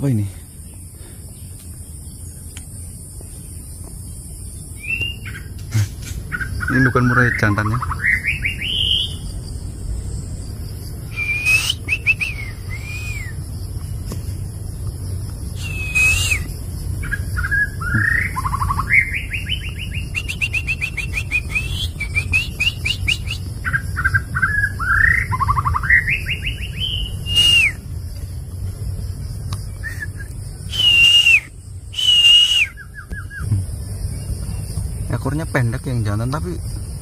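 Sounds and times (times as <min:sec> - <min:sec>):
bird singing whistled phrases: 0:04.8 - 0:05.5, 0:06.4 - 0:09.2, 0:11.1 - 0:13.4, 0:15.6 - 0:27.8, 0:29.8 - 0:33.5.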